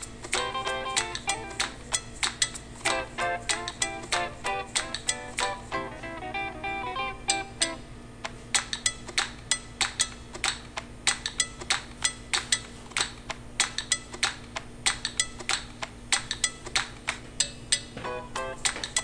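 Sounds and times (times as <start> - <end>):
intro music with plucked notes: 0.4 - 2.0, 2.8 - 7.8.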